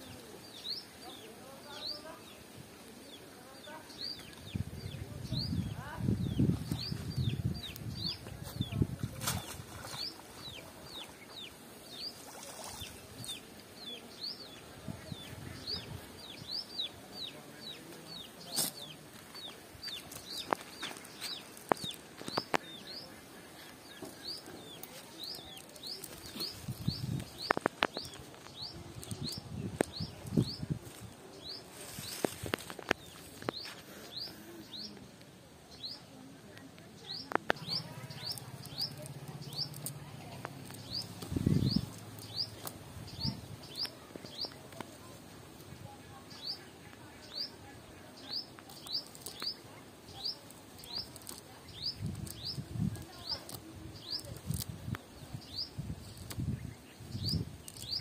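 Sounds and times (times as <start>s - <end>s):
bird chirping: 37.0s - 45.2s.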